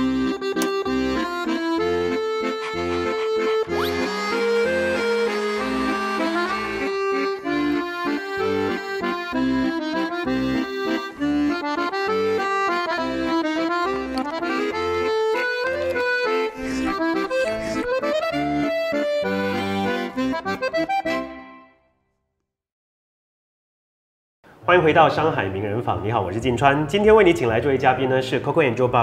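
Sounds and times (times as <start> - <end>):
lively instrumental music: 0.0 - 21.8.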